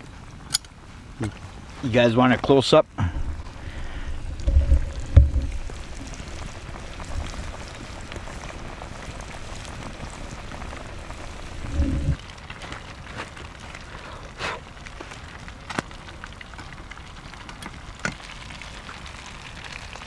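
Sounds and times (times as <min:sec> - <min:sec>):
low thumps: 0:03.1 - 0:07.6
fish frying in hot oil: 0:03.2 - 0:20.0.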